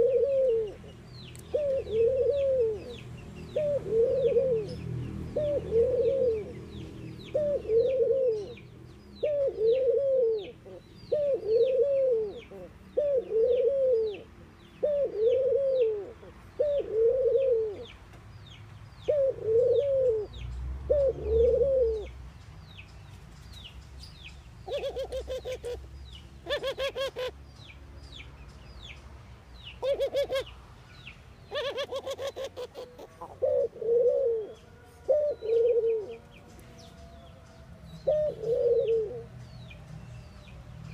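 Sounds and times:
rapid pulsed dove calls: 0.0 - 0.8, 1.5 - 4.8, 5.4 - 6.6, 7.3 - 8.6, 9.2 - 17.9, 24.6 - 25.8, 26.4 - 27.4, 29.8 - 30.5, 31.5 - 36.2, 38.0 - 39.3
dove cooing: 0.0 - 17.9, 19.1 - 22.2, 24.6 - 25.8, 26.4 - 27.4, 29.8 - 30.5, 31.5 - 36.4, 38.0 - 39.4.

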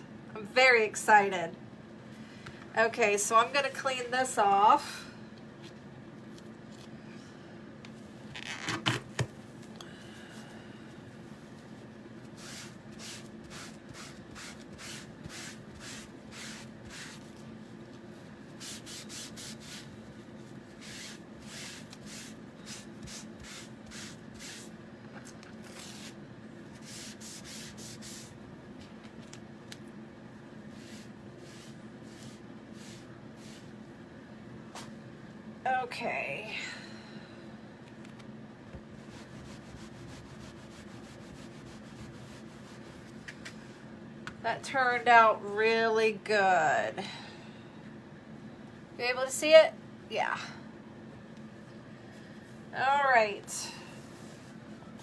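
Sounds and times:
faint steady hum: 0.0 - 55.0
wipe rubbing plastic stencil: 18.5 - 19.9, 20.7 - 24.7, 25.6 - 28.4, 30.7 - 33.7, 39.0 - 43.4.

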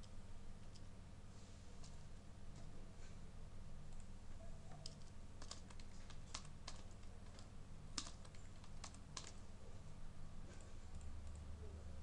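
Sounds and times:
steady low hum: 0.0 - 12.0
keyboard typing: 4.7 - 9.4, 10.9 - 11.5.

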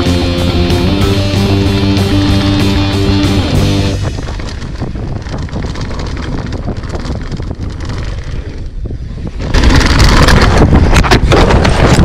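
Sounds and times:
bike rattling: 1.3 - 12.0
wind buffeting microphone: 2.8 - 12.0
tyres on gravel: 3.6 - 12.0.

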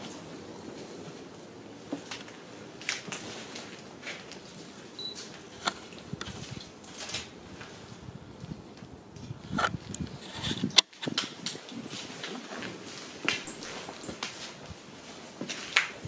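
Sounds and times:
footsteps on debris: 11.0 - 16.0.

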